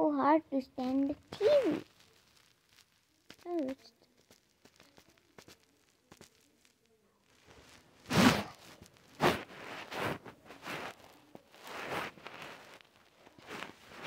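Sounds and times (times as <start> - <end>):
plastic furniture rustling on fabric: 7.4 - 14.0.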